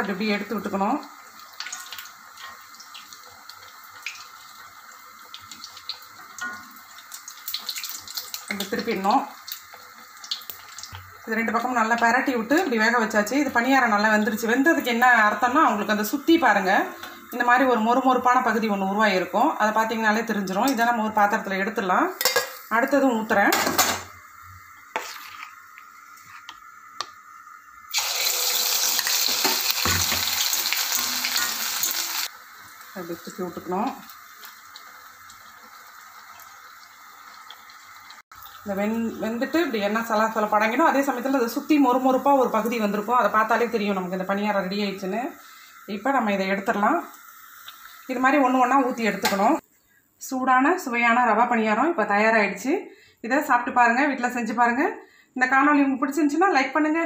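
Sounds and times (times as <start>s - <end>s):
batter sizzling in hot oil: 0.0s - 49.6s
oil popping and crackling: 1.4s - 11.2s, 27.9s - 32.3s.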